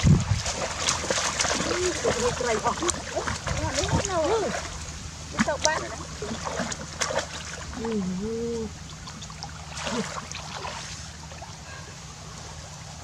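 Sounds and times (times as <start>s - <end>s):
muddy water sloshing and splashing: 0.0s - 13.0s
person humming: 7.8s - 8.8s.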